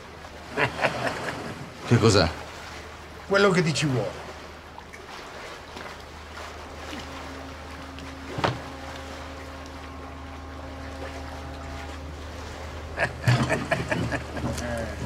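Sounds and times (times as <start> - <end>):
low steady hum: 0.0 - 15.0
droning tone: 5.9 - 15.0.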